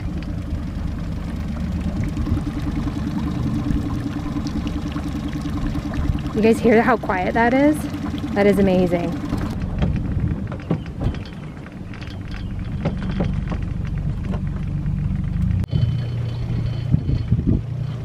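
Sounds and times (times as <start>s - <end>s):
water splashing: 0.0s - 16.5s
outboard motor humming: 0.0s - 18.0s
wind on microphone: 5.5s - 14.5s, 15.5s - 18.0s.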